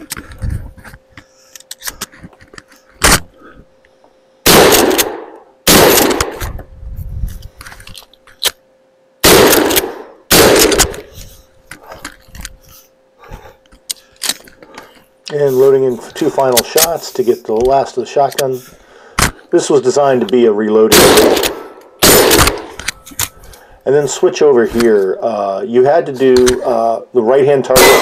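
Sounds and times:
shotgun shots: 4.4 - 6.5, 9.2 - 11.1, 20.9 - 22.8, 27.7 - 28.0
shotgun being cycled and loaded: 9.4 - 11.1, 16.5 - 17.0.

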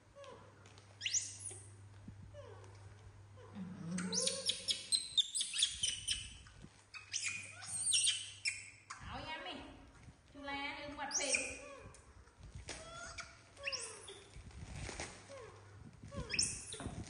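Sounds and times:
baby monkeys squealing: 1.0 - 1.6, 3.9 - 9.1, 11.1 - 11.9, 12.7 - 14.3, 16.1 - 17.0.

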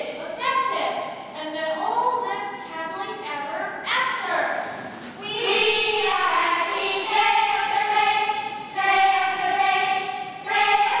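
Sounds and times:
children singing in unison: 5.2 - 11.0.

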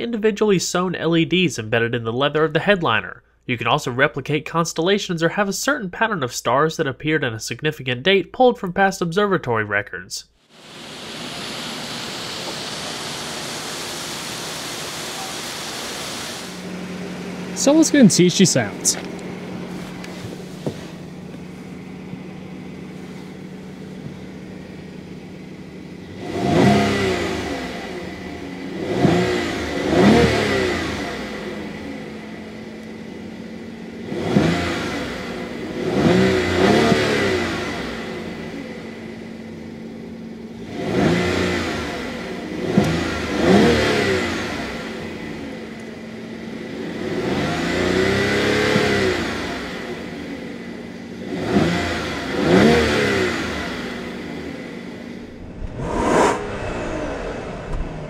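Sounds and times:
car engine idling and revving: 16.4 - 18.0, 18.6 - 58.0.

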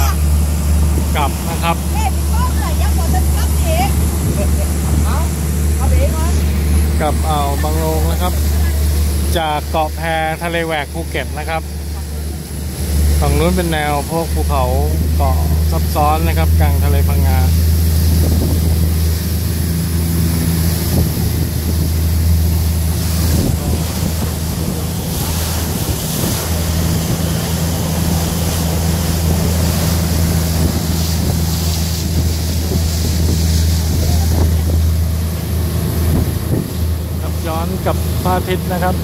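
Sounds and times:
wind buffeting microphone: 0.0 - 9.3, 16.4 - 38.2
boat engine droning: 0.0 - 39.0
water spray rushing along hull: 0.0 - 39.0.

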